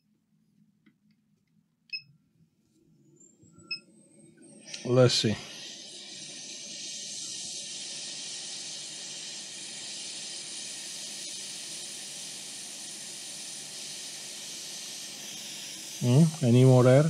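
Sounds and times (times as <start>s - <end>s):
hot air nozzle hissing: 4.5s - 17.0s.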